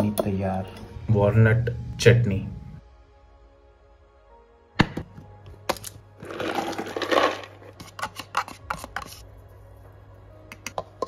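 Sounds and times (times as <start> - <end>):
nuts rattling in a metal jar: 6.2 - 7.7.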